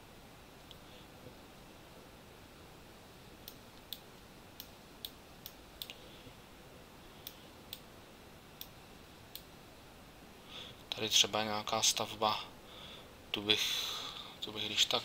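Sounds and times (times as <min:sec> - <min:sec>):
faint room hiss: 0:00.0 - 0:15.0
computer mouse clicking: 0:03.4 - 0:06.0.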